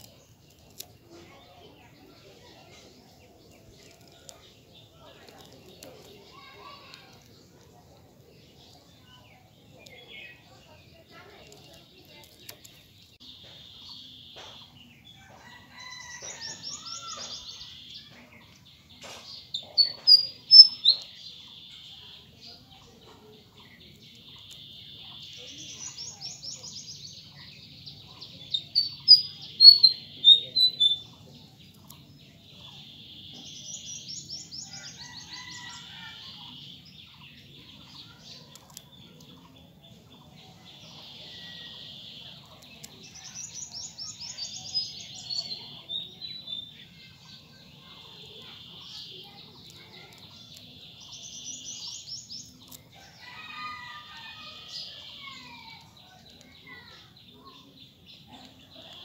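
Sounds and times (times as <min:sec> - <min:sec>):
buzzy bird trill: 0:19.4 - 0:21.9, 0:28.5 - 0:31.2.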